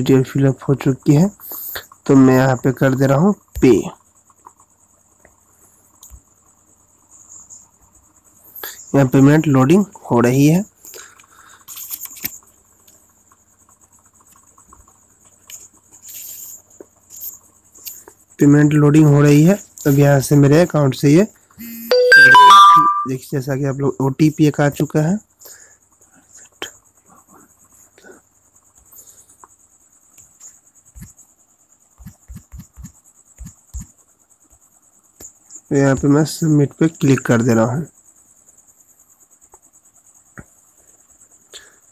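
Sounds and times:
crickets chirring: 0:00.0 - 0:41.9
fingers tapping phone touchscreen: 0:32.0 - 0:33.9.

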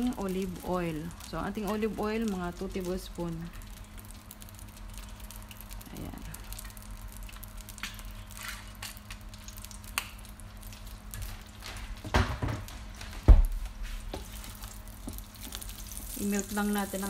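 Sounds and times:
faint sizzle: 0:00.0 - 0:17.0.

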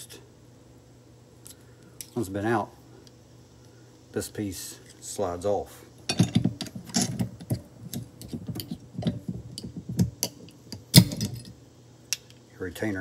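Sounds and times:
metal clank: 0:10.0 - 0:11.6.

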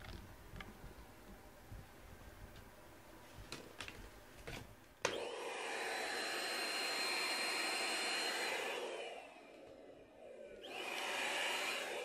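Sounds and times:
vacuum cleaner running: 0:05.0 - 0:12.0.

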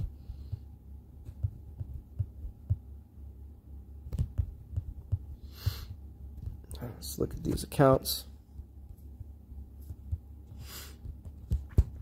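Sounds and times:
soft low thumps: 0:00.0 - 0:03.0, 0:04.0 - 0:06.8, 0:08.5 - 0:12.0
low steady hum: 0:00.0 - 0:12.0.

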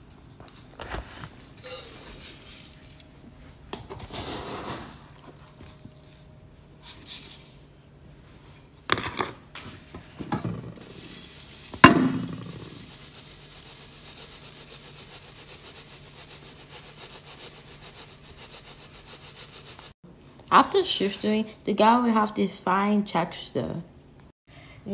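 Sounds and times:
granules falling through sieve: 0:01.6 - 0:03.2, 0:10.8 - 0:19.9
sieve knocks: 0:11.8 - 0:12.9.

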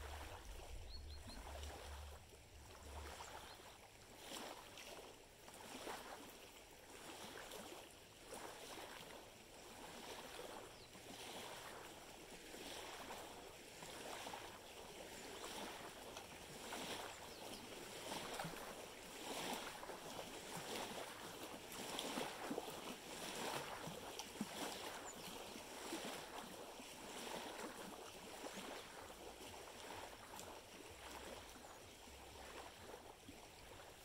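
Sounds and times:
small waves lapping on shore: 0:00.0 - 0:34.0.

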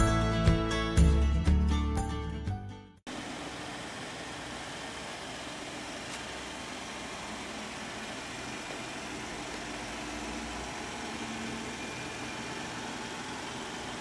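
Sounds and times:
car engine idling: 0:03.1 - 0:14.0.

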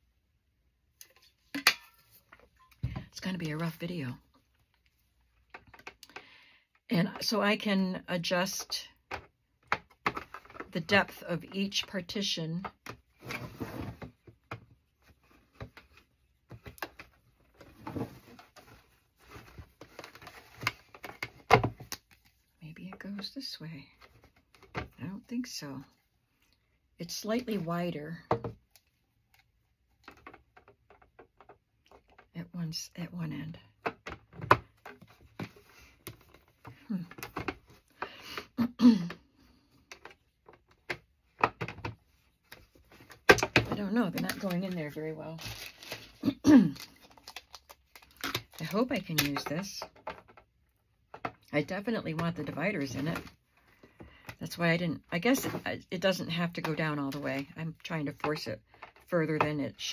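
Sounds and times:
plastic clicks and knocks: 0:30.0 - 0:32.3, 0:39.9 - 0:44.5, 0:48.0 - 0:50.5.

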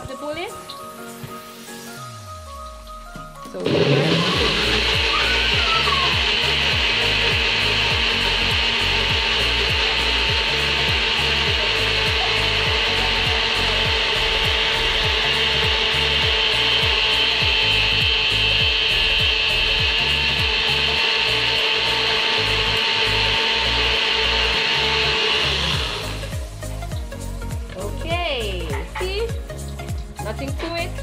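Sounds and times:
blender motor running: 0:03.4 - 0:28.0
steady low beat: 0:04.3 - 0:30.8.

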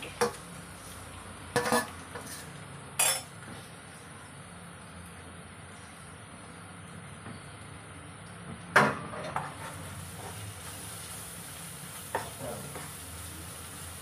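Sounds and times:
onions sizzling: 0:00.0 - 0:03.2, 0:09.4 - 0:14.0
spatula scraping in a wok: 0:00.0 - 0:04.2, 0:09.1 - 0:14.0.

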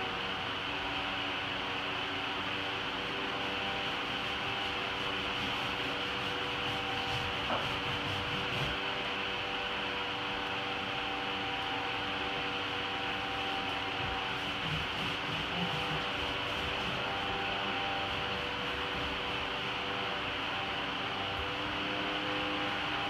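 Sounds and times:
room hum and hiss: 0:00.0 - 0:23.0
paint rubbing on a wall: 0:02.6 - 0:09.2, 0:11.6 - 0:20.6.

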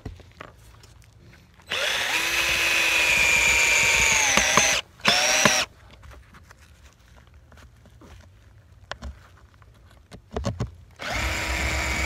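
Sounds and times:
cordless drill driving a screw: 0:01.7 - 0:05.7, 0:11.0 - 0:12.0.

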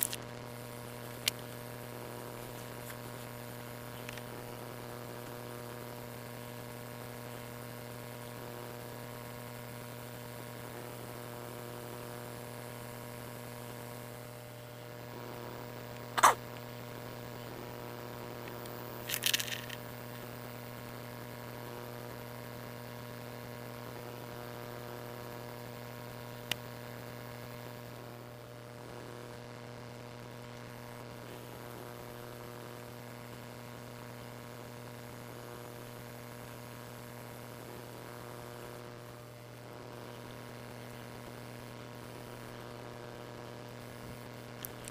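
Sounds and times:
electric motors humming: 0:00.0 - 0:44.9
sharp click: 0:16.2 - 0:16.4
plastic clatter: 0:19.1 - 0:19.8.

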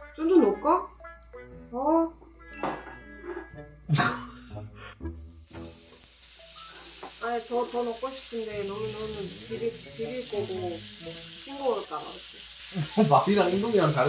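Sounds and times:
meat sizzling in a frying pan: 0:05.3 - 0:14.0.

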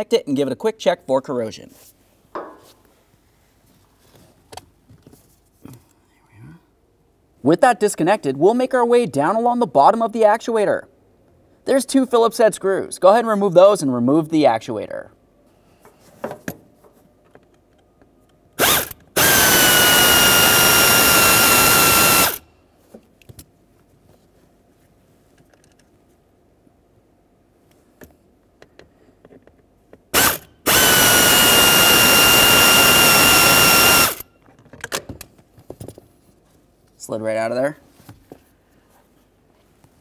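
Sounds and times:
cordless power driver motor: 0:18.6 - 0:22.4, 0:30.2 - 0:34.2.

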